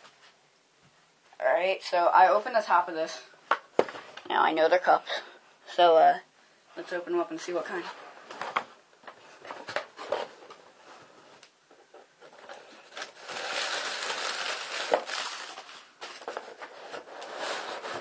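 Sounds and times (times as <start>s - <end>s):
packing material rustling: 12.2s - 18.0s.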